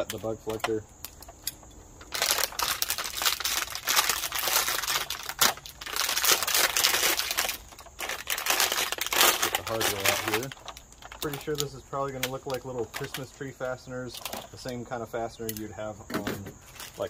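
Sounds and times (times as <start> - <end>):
plastic packaging crinkling: 2.0 - 14.8, 16.6 - 17.0.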